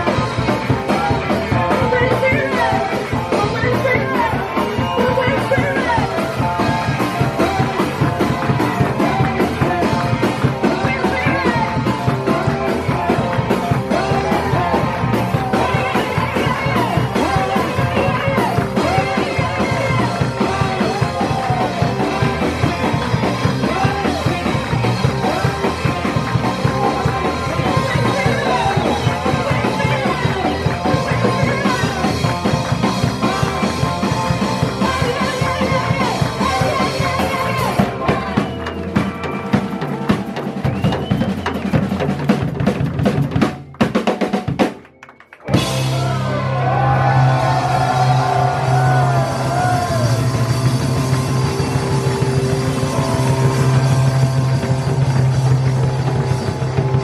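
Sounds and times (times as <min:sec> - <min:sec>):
electric bass: 0:00.0 - 0:43.5, 0:45.4 - 0:57.0
drum kit: 0:00.0 - 0:57.0
electric keyboard: 0:00.0 - 0:57.0
woman singing: 0:15.4 - 0:22.8, 0:34.6 - 0:38.5.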